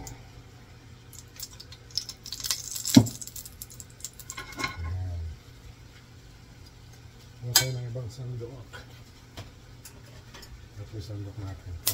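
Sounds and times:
kitchen utensils clinking and rattling: 4.2s - 4.8s.

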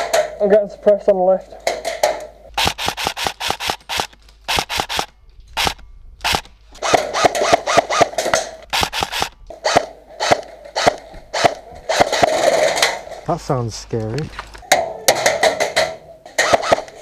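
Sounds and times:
airsoft gunfire bursts: 2.6s - 8.2s, 8.8s - 12.4s, 16.4s - 16.9s.

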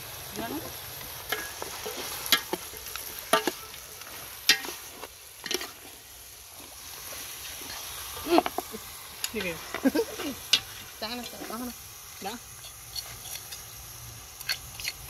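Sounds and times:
meat sizzling in oil: 0.0s - 15.0s
metal spoon clinking and scraping pot: 1.3s - 6.0s, 12.6s - 13.7s, 14.4s - 15.0s.

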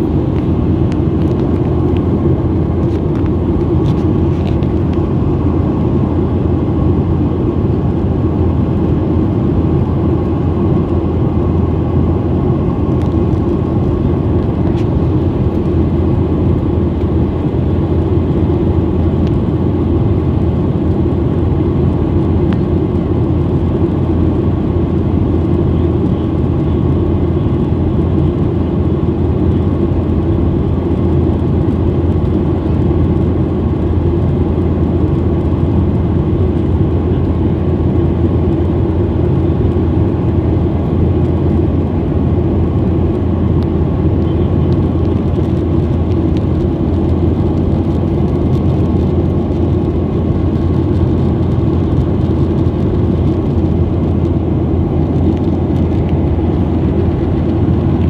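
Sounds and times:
jet airliner cabin noise: 0.0s - 58.0s.

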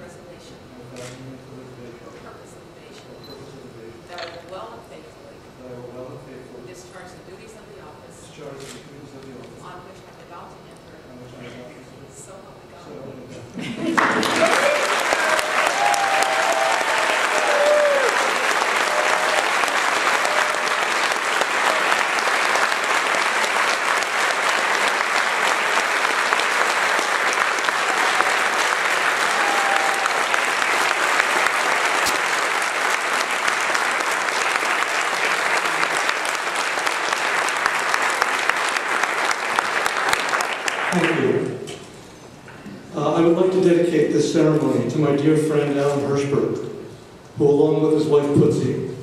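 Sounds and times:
crowd applauding: 13.9s - 41.5s.

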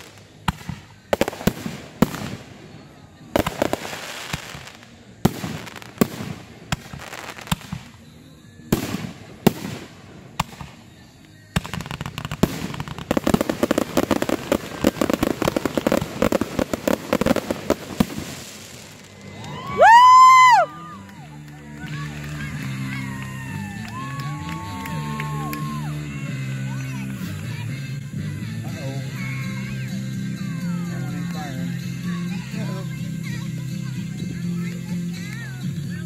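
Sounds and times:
dense firework crackling: 0.0s - 28.6s
firework shells bursting: 11.6s - 20.6s.

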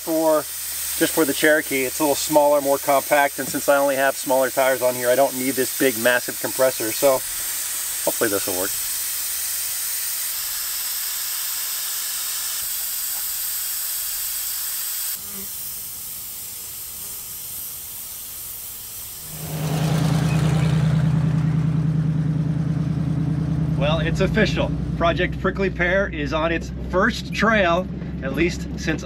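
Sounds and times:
air hissing from tire valve: 0.0s - 19.7s
car engine humming: 19.2s - 29.0s.

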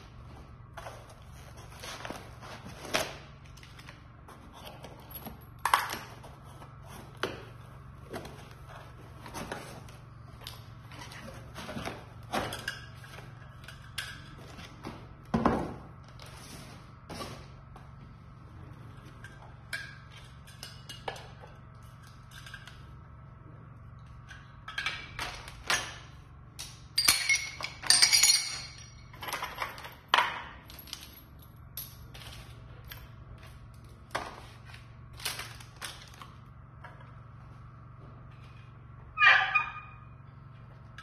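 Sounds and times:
steady low hum: 0.0s - 41.0s
metal parts clattering on tile floor: 26.6s - 33.6s.

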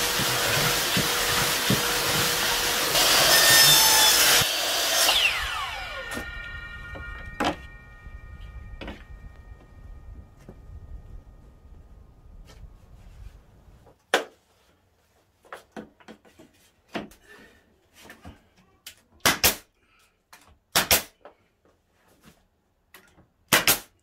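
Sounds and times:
steady low rumble: 5.6s - 13.8s
nail gun firing: 19.2s - 19.6s, 20.7s - 21.1s, 23.5s - 23.9s.

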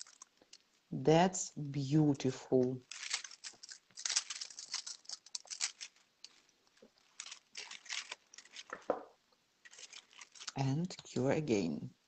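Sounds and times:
scratching and rustling of nail tools: 0.0s - 0.8s, 2.8s - 11.1s.

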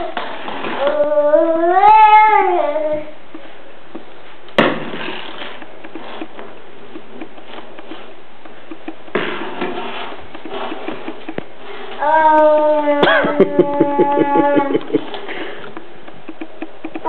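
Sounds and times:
steady low hiss: 0.0s - 17.0s
child's drawn-out ooh: 12.0s - 14.9s.

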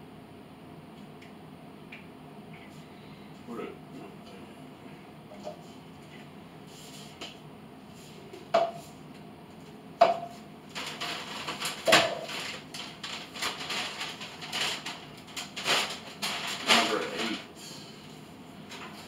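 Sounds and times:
knocks of cups set down: 8.5s - 8.8s, 10.0s - 10.4s
kitchen clatter: 10.0s - 17.4s
rustling: 10.7s - 17.4s.

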